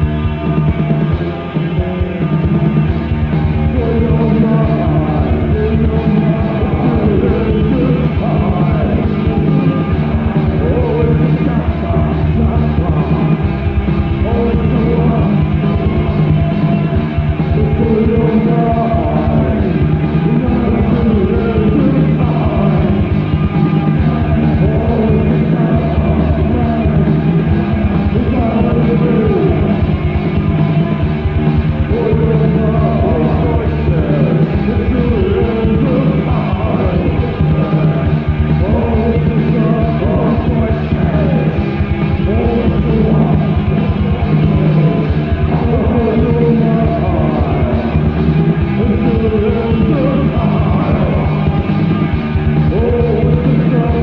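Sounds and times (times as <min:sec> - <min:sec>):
person singing: 0:00.0 - 0:54.0
rock band playing: 0:00.0 - 0:54.0.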